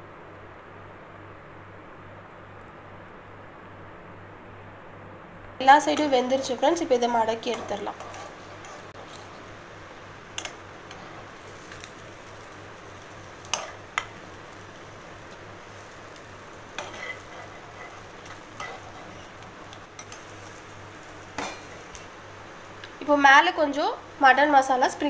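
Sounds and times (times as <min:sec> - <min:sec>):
faint steady hiss: 0:00.0 - 0:25.0
spatula scraping frying pan: 0:05.8 - 0:09.5, 0:10.4 - 0:11.9, 0:15.2 - 0:20.6.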